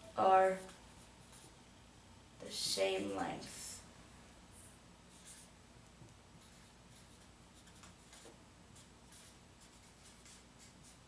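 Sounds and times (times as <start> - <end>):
low room hum: 0.0 - 11.0
marker writing on whiteboard: 0.3 - 1.6, 5.1 - 5.6, 6.4 - 11.0.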